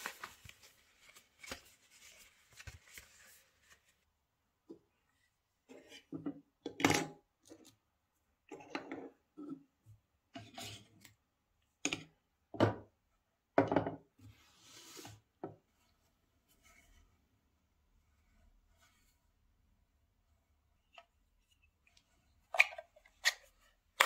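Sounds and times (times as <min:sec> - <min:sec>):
cardboard and plastic packaging handled: 0:00.0 - 0:04.1.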